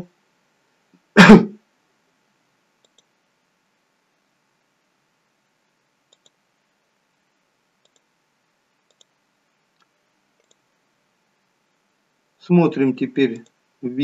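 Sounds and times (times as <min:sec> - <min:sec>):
computer mouse clicks: 0:02.8 - 0:03.1, 0:06.1 - 0:06.4, 0:07.8 - 0:08.1, 0:08.8 - 0:10.7, 0:13.3 - 0:13.6.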